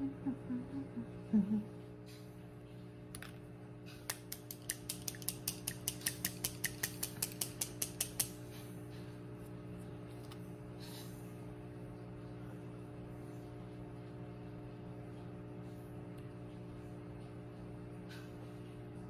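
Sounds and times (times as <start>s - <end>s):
tube being shaken clicking: 4.1s - 8.4s.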